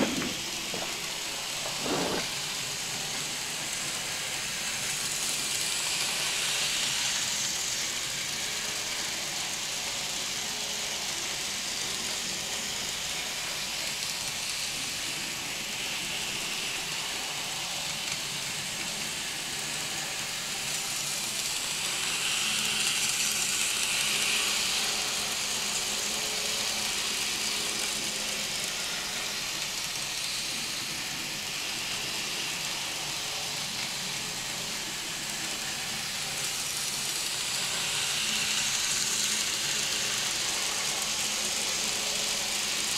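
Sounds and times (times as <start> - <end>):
wheels rolling on rails: 0.0 - 6.8
model train motor whirring: 0.0 - 42.9.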